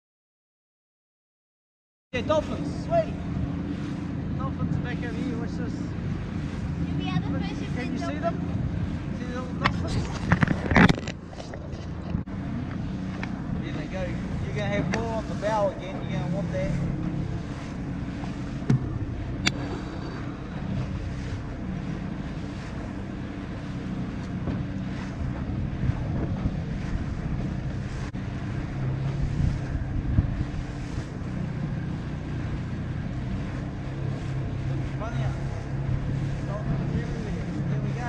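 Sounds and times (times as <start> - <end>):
boat engine hum: 2.2 - 38.0
water rushing and splashing: 2.2 - 38.0
wind buffeting microphone: 2.6 - 38.0
sharp knocks: 18.6 - 20.2.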